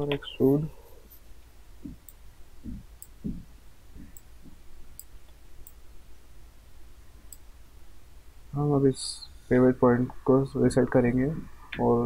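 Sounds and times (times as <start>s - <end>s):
soft low thumps: 1.7s - 4.9s.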